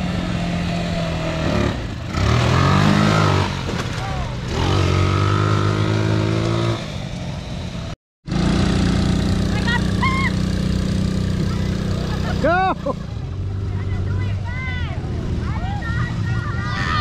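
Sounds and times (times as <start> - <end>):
atv engines revving: 0.0 - 17.0.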